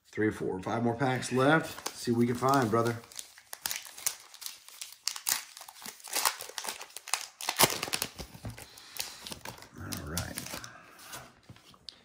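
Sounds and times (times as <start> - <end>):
wrapper crinkling and tearing: 1.6 - 10.7.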